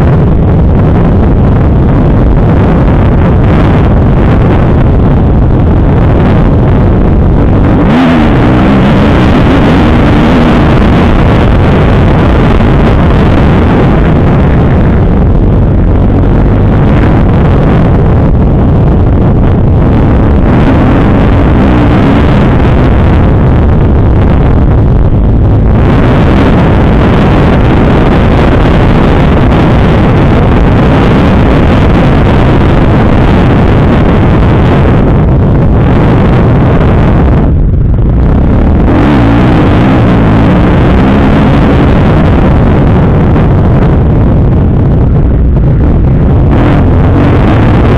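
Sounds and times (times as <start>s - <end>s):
wind rushing over microphone: 0.0s - 47.9s
motocross engine revving: 7.3s - 15.6s, 19.8s - 30.0s, 38.2s - 42.3s.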